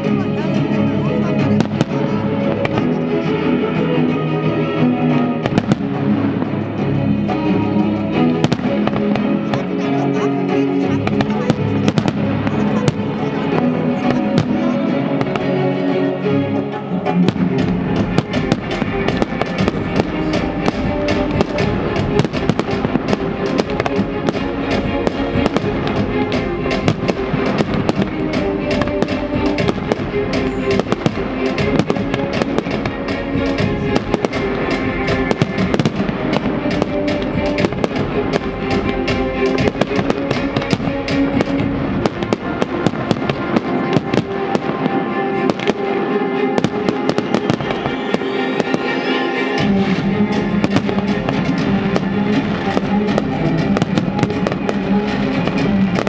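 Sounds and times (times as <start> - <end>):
music playing: 0.0 - 56.0
firework crackles: 17.3 - 56.0.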